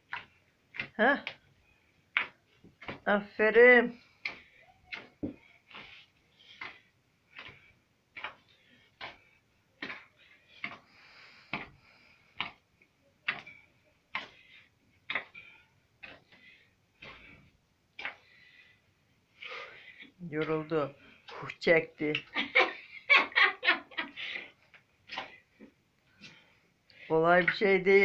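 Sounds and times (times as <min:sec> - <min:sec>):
fists kneading dough in tub: 0:03.9 - 0:18.8.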